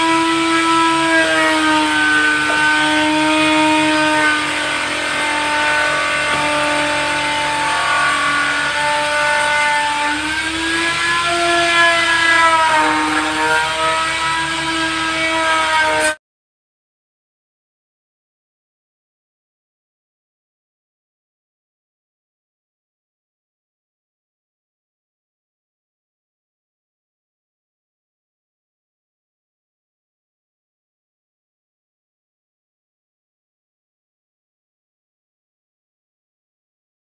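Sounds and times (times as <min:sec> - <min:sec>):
power tool motor whining: 0:00.0 - 0:16.2.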